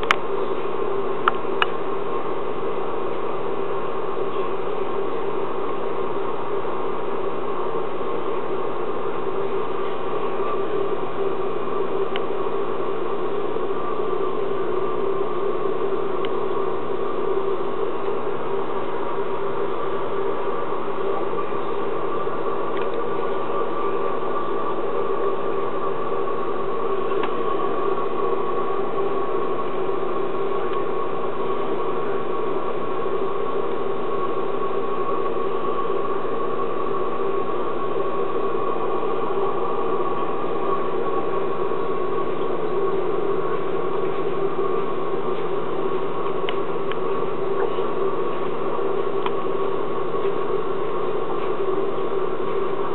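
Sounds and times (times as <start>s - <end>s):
aquarium pump humming: 0.0s - 52.9s.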